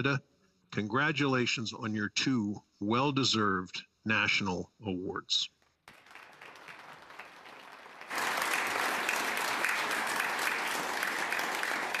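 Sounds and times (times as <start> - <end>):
people applauding: 5.8 - 12.0.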